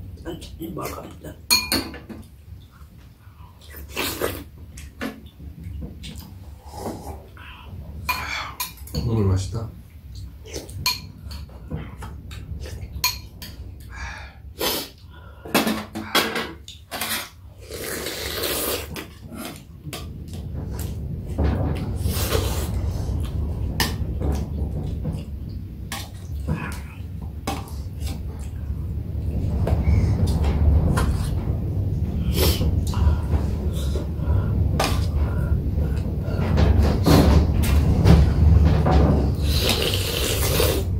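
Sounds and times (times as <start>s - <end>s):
steady low hum: 0.0s - 40.9s
eating sounds: 16.6s - 19.7s, 39.4s - 40.9s
slurping soup: 17.0s - 19.6s, 39.4s - 40.9s.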